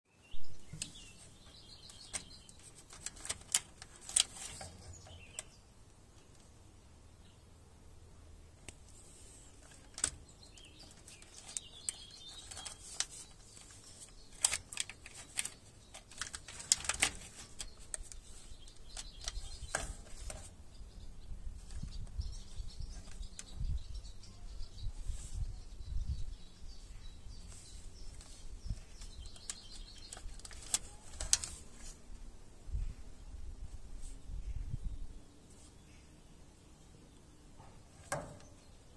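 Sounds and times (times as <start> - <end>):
glove and wires rustling: 0.7 - 5.6, 8.7 - 20.6, 27.3 - 32.1.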